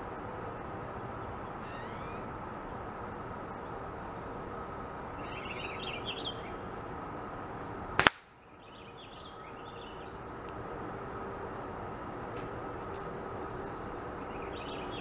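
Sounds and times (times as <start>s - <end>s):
outdoor background noise: 0.0s - 15.0s
small bird chirps: 1.6s - 2.2s
air rifle shot: 8.0s - 8.3s
pellet striking target: 8.0s - 8.3s.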